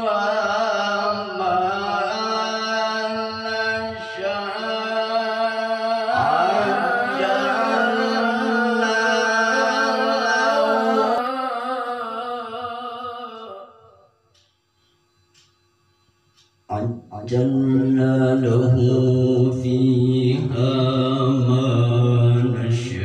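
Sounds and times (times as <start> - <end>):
man chanting held notes: 16.7 - 20.7.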